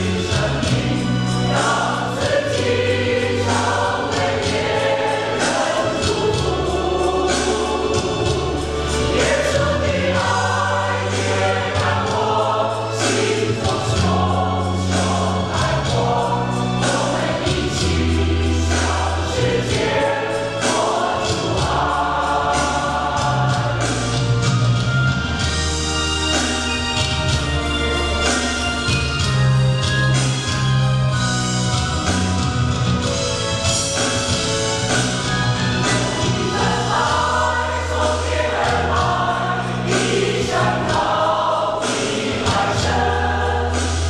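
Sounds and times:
mixed choir singing a hymn: 0.0 - 25.5, 35.2 - 44.0
instrumental accompaniment: 0.0 - 44.0.

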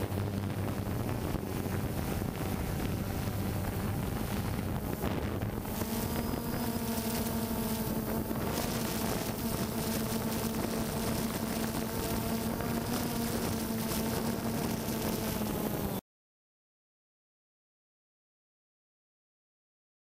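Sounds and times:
wind buffeting microphone: 0.0 - 12.8
drone propellers humming: 0.0 - 16.0.

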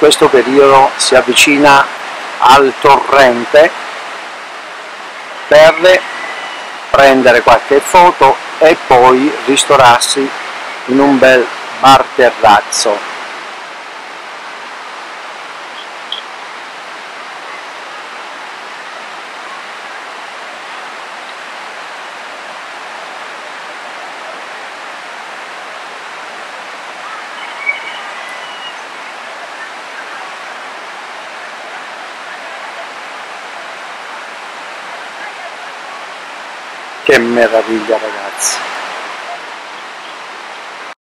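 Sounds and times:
mountain stream rushing: 0.0 - 41.0.

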